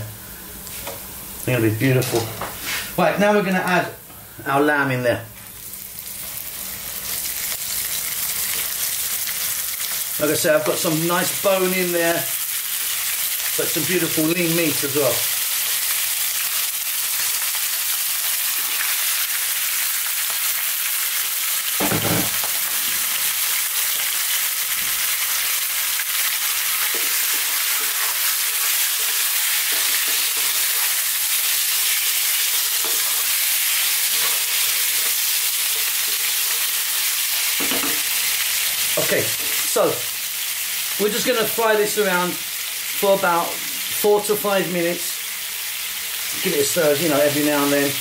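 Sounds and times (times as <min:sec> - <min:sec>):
meat sizzling in oil: 0:05.5 - 0:48.0
thump: 0:21.8 - 0:22.4.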